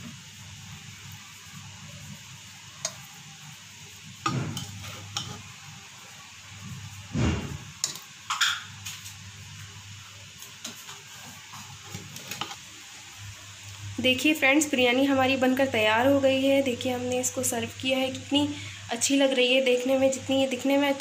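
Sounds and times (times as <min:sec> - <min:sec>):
metal spoon scraping steel pot: 0:04.5 - 0:05.5.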